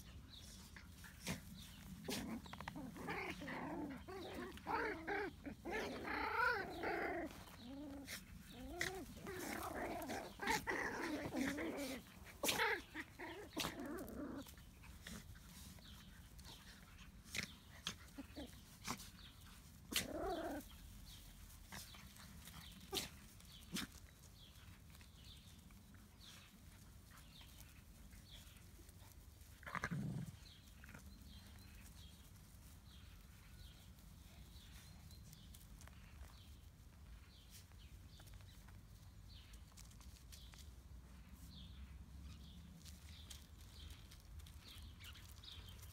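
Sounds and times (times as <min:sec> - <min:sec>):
puppies yipping and growling: 0:01.2 - 0:15.8, 0:19.8 - 0:20.7.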